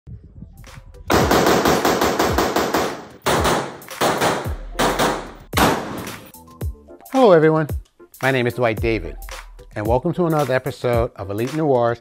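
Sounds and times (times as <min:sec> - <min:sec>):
rifle shots: 0:01.1 - 0:06.3.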